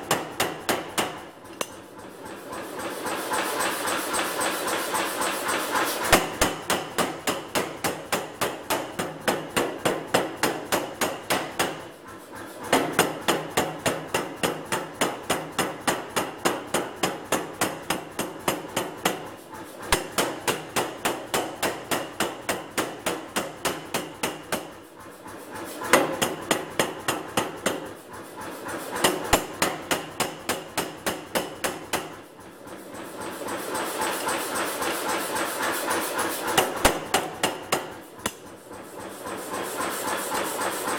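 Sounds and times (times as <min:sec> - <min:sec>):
power hammer striking steel: 0:00.0 - 0:01.8, 0:03.5 - 0:11.9, 0:12.7 - 0:24.8, 0:25.8 - 0:28.0, 0:28.9 - 0:32.2, 0:36.1 - 0:38.5.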